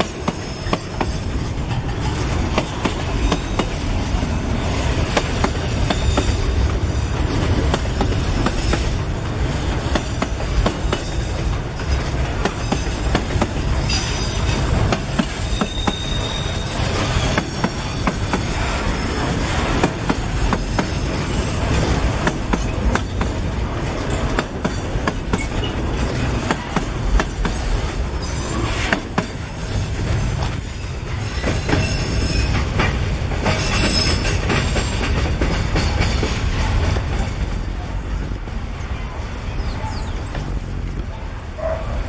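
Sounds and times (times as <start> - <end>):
wheels clacking over rail joints: 0.0 - 38.7
train rumbling past: 0.0 - 42.0
high-pitched wheel squeals: 13.9 - 14.6, 15.4 - 18.1.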